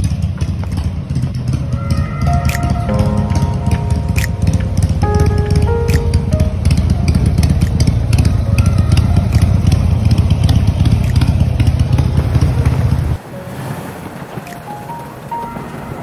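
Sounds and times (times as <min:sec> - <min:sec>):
motorcycle engine idling: 0:00.0 - 0:02.3, 0:04.7 - 0:13.2.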